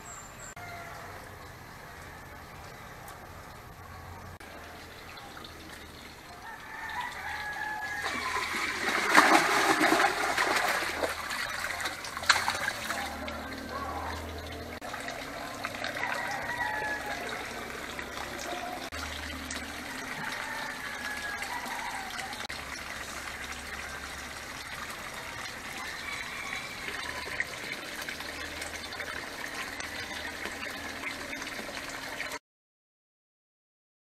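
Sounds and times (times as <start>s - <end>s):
water pouring into a tank: 1.4s - 32.4s
chickens clucking and crowing: 5.9s - 22.5s, 23.6s - 32.3s.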